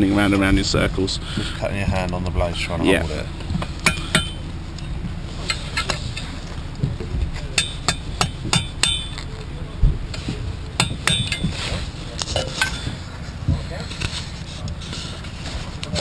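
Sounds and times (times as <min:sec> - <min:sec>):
hammer tapping chisel on metal: 0:03.8 - 0:04.4, 0:07.6 - 0:09.3, 0:10.8 - 0:11.6.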